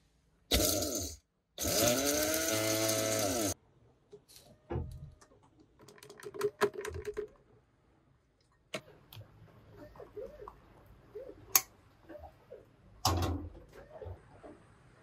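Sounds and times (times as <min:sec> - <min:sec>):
coffee grinder whine: 0:00.5 - 0:03.6.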